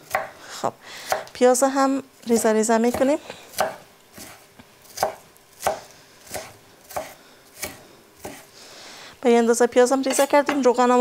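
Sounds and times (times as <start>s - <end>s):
knife chopping on wooden board: 0.0s - 0.4s, 1.1s - 1.3s, 2.9s - 8.5s.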